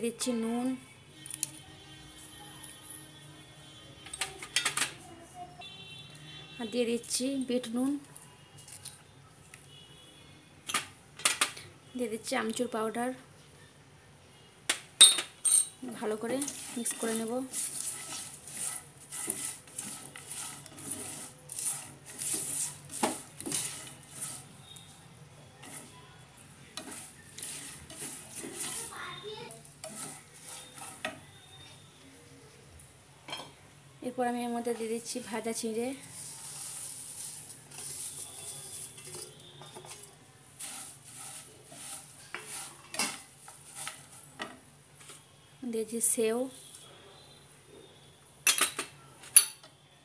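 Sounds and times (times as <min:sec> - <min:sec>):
spatula scraping frying pan: 0:15.9 - 0:24.9, 0:25.6 - 0:26.0, 0:26.7 - 0:31.5, 0:36.0 - 0:44.5
dry rustling of rice flakes: 0:16.4 - 0:24.6, 0:36.0 - 0:39.0, 0:40.5 - 0:42.8.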